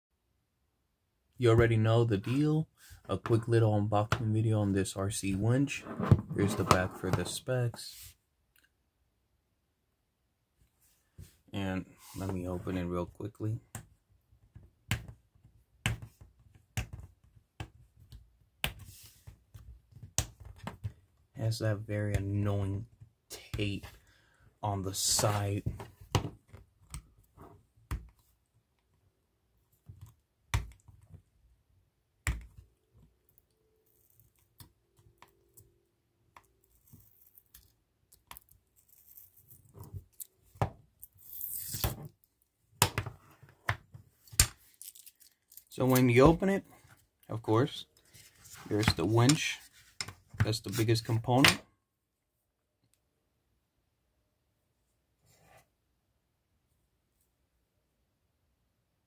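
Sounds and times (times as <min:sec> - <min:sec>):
tape being peeled off: 0:36.6 - 0:40.4, 0:41.0 - 0:42.1.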